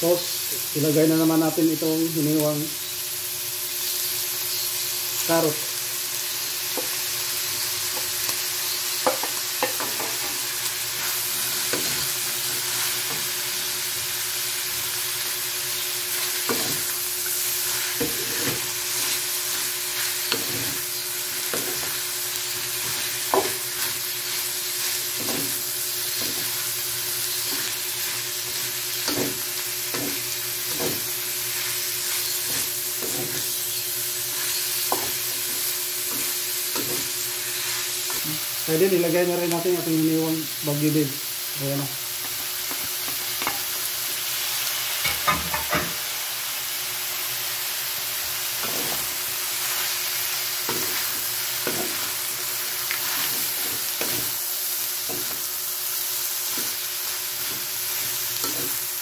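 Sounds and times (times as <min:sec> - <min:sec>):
food sizzling in a wok: 0:00.0 - 0:59.0
spatula knocking and scraping pan: 0:09.0 - 0:10.4, 0:16.4 - 0:16.9, 0:22.8 - 0:26.6, 0:29.0 - 0:33.6, 0:34.4 - 0:37.2, 0:45.0 - 0:46.0, 0:50.6 - 0:52.2.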